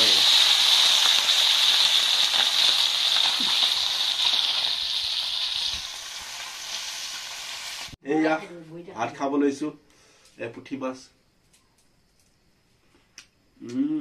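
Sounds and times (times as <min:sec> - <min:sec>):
fish sizzling in hot oil: 0:00.0 - 0:08.0.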